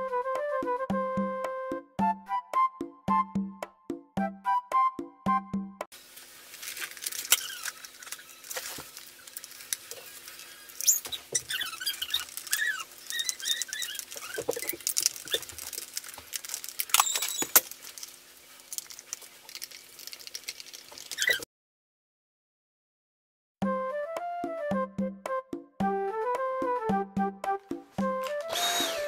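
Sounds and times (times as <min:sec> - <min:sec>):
high chirpy squeaks: 0:10.0 - 0:15.5, 0:16.9 - 0:17.6, 0:21.1 - 0:21.4
plastic clicks and rattles: 0:11.8 - 0:18.1.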